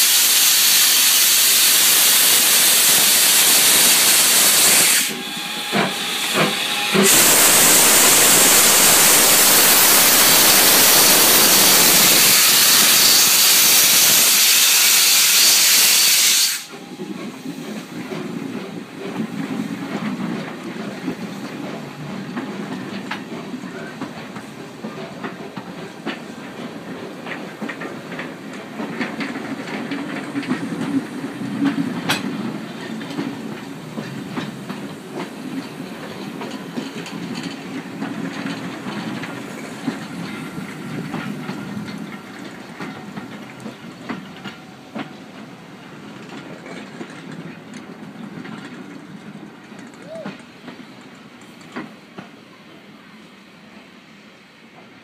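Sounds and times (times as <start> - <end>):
locomotive steam hissing: 0.0 - 55.0
train coaches rumbling past: 0.0 - 55.0
wheels clicking: 17.7 - 52.0.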